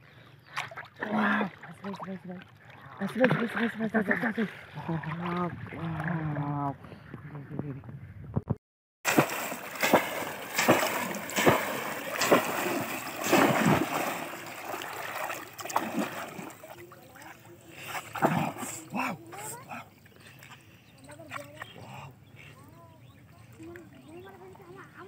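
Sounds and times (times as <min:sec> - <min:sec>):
fish trap splashing into water: 0:09.1 - 0:16.8.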